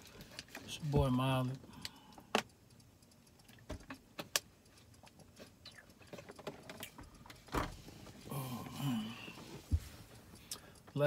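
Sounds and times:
sharp clicks and knocks: 0:00.0 - 0:07.9
faint ticks: 0:00.1 - 0:11.0.

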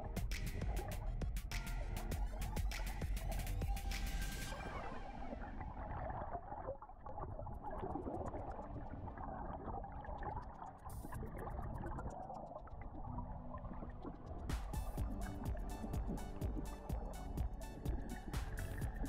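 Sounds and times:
muffled river water underwater: 0:02.1 - 0:19.0.

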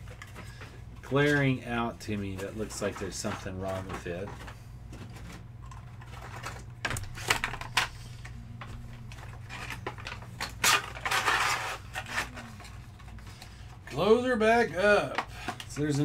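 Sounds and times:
low steady hum: 0:00.0 - 0:16.0
packaging rustling: 0:02.2 - 0:14.0
packaging clicks and knocks: 0:02.8 - 0:12.8.

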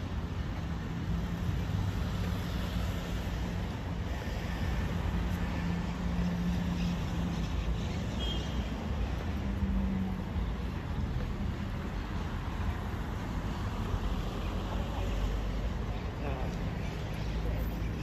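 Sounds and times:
rumble of passing cars: 0:00.0 - 0:18.0.

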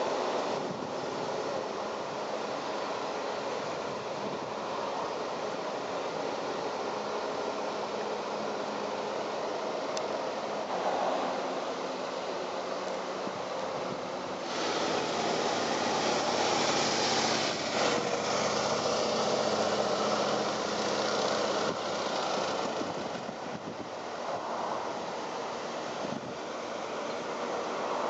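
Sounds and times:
cars driving slowly past: 0:00.0 - 0:28.0.

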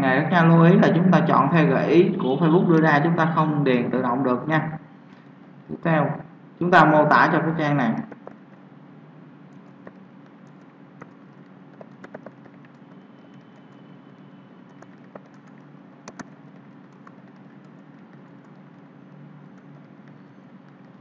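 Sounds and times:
steady low hum: 0:00.0 - 0:21.0
keyboard typing: 0:08.0 - 0:08.6, 0:09.5 - 0:21.0.

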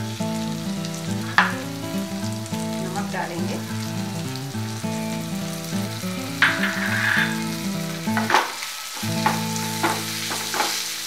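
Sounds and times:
oil sizzling in frying pan: 0:00.0 - 0:11.0
soft background music: 0:00.0 - 0:11.0
spatula scraping a pan: 0:06.4 - 0:10.9.

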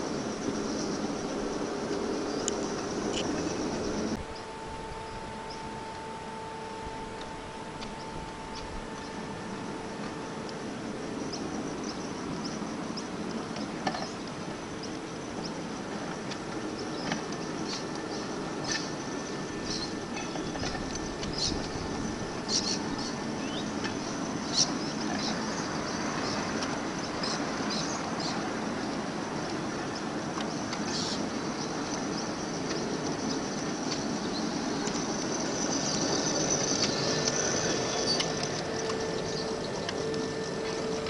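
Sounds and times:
small wheels rumbling on rail: 0:00.0 - 0:41.0
steady hum: 0:00.0 - 0:41.0
bright squealing: 0:33.1 - 0:41.0.

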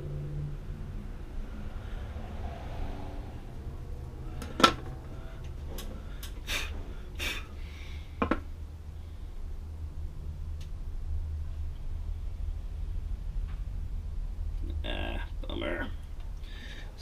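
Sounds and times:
steady low hum: 0:00.0 - 0:17.0
puffs of breath: 0:05.1 - 0:08.2, 0:16.4 - 0:17.0.

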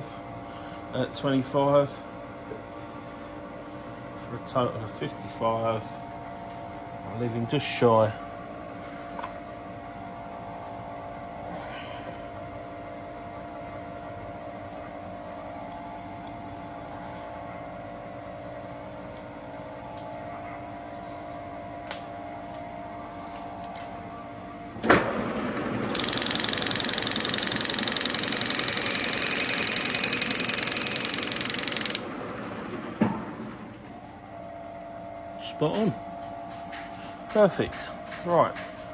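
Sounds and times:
milling machine hum: 0:24.2 - 0:35.7
harsh metal cutting noise: 0:25.8 - 0:32.1.

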